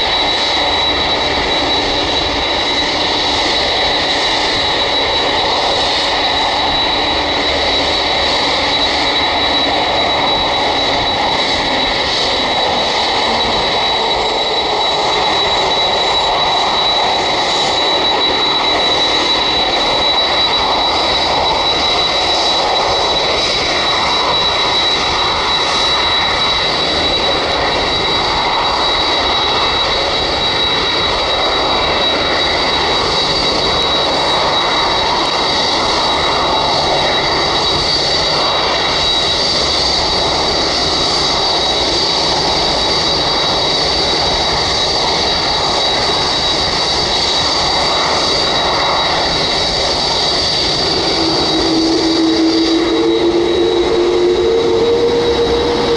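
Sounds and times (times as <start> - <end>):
jet engines rushing: 0.0 - 55.9
high fan whine: 40.2 - 55.9
second higher whine: 47.9 - 55.9.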